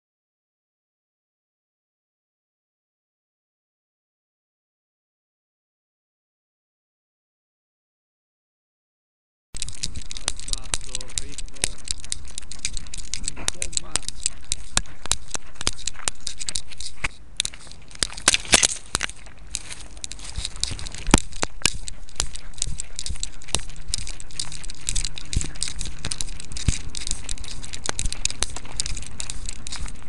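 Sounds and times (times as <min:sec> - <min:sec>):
collar rubbing against fur: 0:09.6 - 0:30.0.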